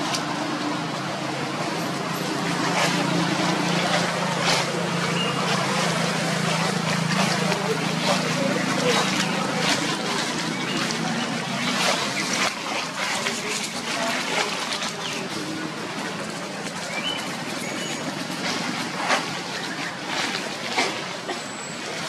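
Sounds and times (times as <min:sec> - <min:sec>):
dry leaves rustling and crackling: 0:06.5 - 0:21.2
high bird chirps: 0:16.9 - 0:18.1.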